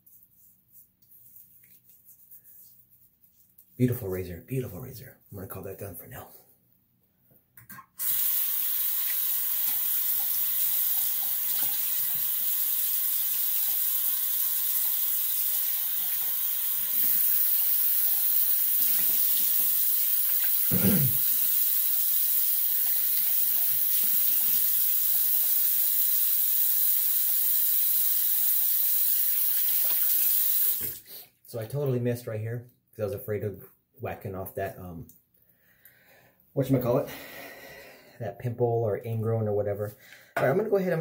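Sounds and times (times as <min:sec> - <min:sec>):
water splashing into sink: 0:08.0 - 0:26.2, 0:28.1 - 0:31.0.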